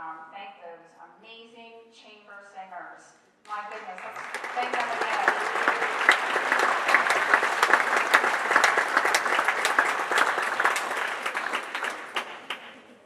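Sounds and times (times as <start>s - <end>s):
audience applauding: 3.5s - 13.0s.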